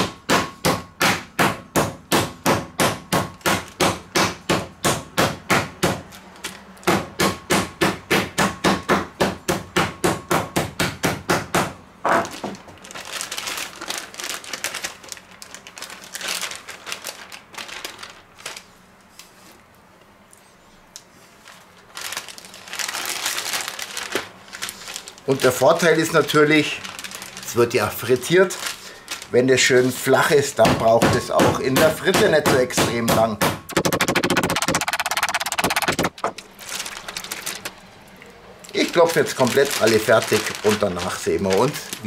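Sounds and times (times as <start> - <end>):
mallet pounding meat on board: 0.0 - 6.0, 6.8 - 11.8, 30.6 - 34.9
plastic bag rustling: 12.1 - 19.6, 21.1 - 30.5, 33.7 - 42.0.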